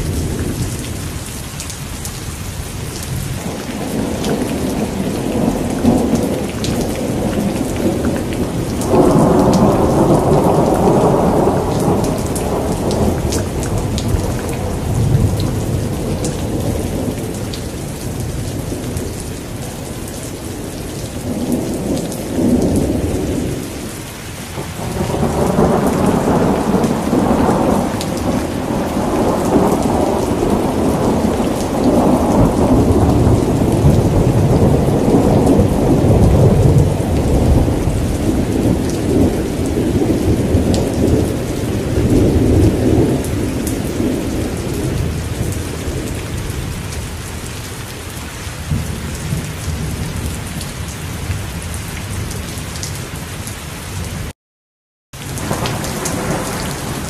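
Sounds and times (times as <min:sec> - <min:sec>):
steady rain: 0:00.0 - 0:54.3, 0:55.2 - 0:57.0
rolling thunder: 0:03.0 - 0:47.1, 0:55.3 - 0:57.0.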